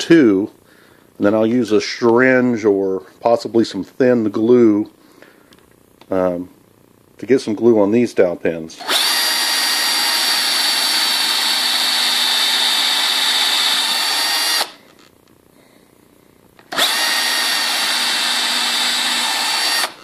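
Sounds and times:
electric drill boring into wood: 0:08.8 - 0:14.8, 0:16.7 - 0:20.0.

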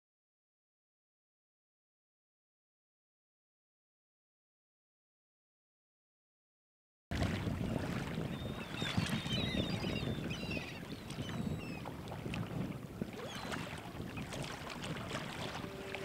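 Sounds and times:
wind rumble on microphone: 0:07.1 - 0:16.0
small birds chirping: 0:08.4 - 0:11.8.

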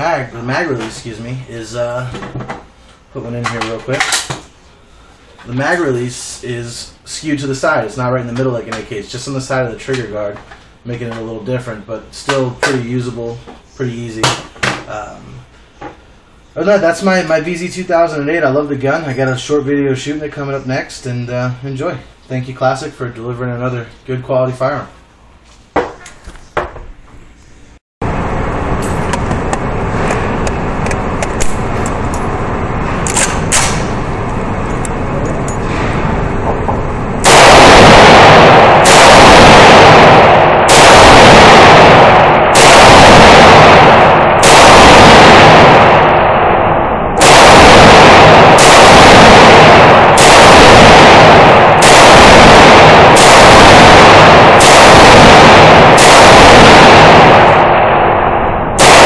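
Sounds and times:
rifle shots echoing indoors: 0:32.8 - 0:34.2, 0:37.2 - 0:59.0.

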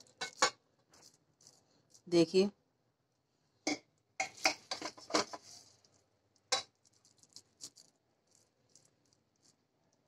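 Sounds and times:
spoon scraping a metal pot: 0:03.7 - 0:05.6.

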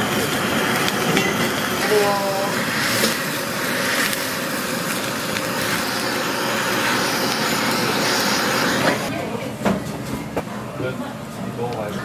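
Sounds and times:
blowtorch flame hissing: 0:00.0 - 0:09.2.

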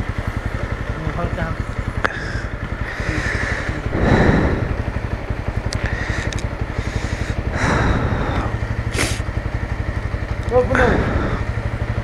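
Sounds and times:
motorcycle engine running: 0:00.0 - 0:12.0
hiss: 0:08.9 - 0:09.2.

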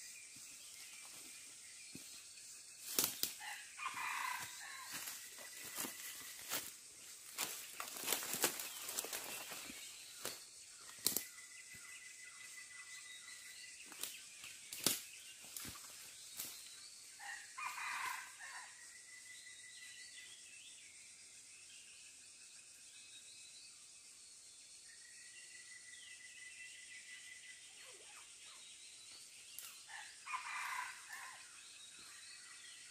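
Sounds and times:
high insect drone: 0:00.0 - 0:32.9
rustling in dry leaf litter: 0:04.9 - 0:09.8.

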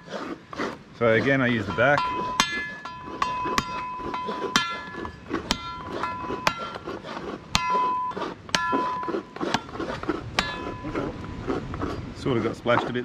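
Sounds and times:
machete chopping coconut: 0:00.0 - 0:12.0
steel blade ringing: 0:01.5 - 0:06.8, 0:07.5 - 0:09.1, 0:10.4 - 0:11.0.

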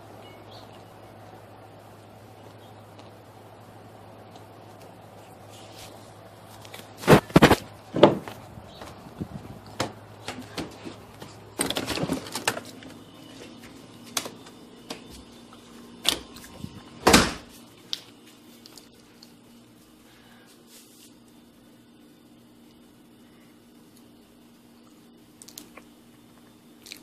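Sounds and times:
crackers crunched reversed: 0:05.2 - 0:07.7.

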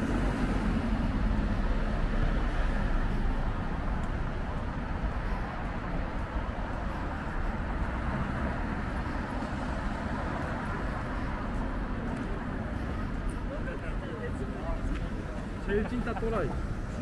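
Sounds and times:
traffic rumble: 0:00.0 - 0:17.0
people's voices: 0:05.2 - 0:17.0.

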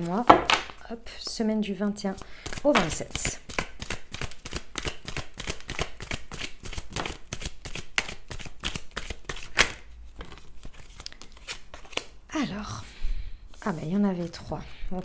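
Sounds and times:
cards falling on wooden table: 0:00.2 - 0:00.8
cards being shuffled: 0:02.1 - 0:12.2.

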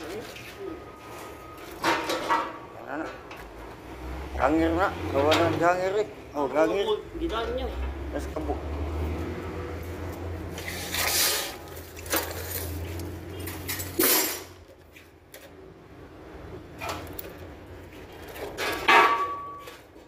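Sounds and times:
metal parts knocking and clattering: 0:18.0 - 0:20.0.

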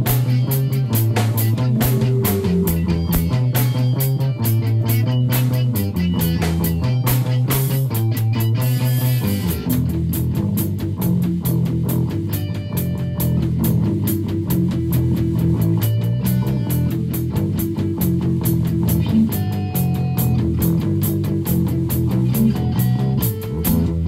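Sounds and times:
rock music: 0:00.0 - 0:24.0.

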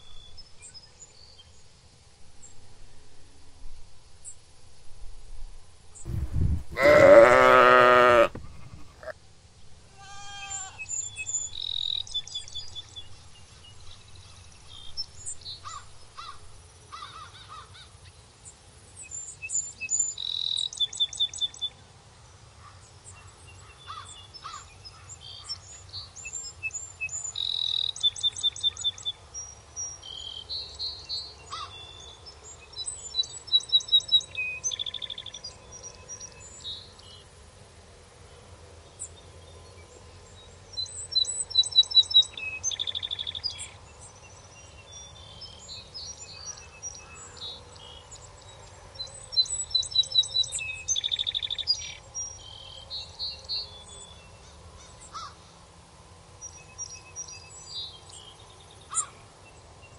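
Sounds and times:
songbirds chirping and trilling: 0:00.0 - 0:02.7, 0:05.9 - 0:59.9
sheep bleating: 0:06.7 - 0:09.1, 0:09.9 - 0:10.9.

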